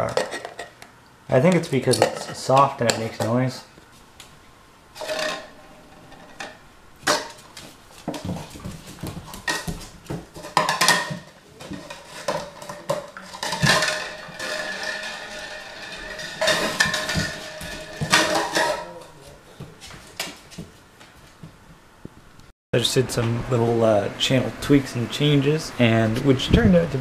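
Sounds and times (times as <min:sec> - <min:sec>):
knocks and scrapes on floor: 0:05.0 - 0:20.8
plastic cup crackling and clattering: 0:09.2 - 0:18.9.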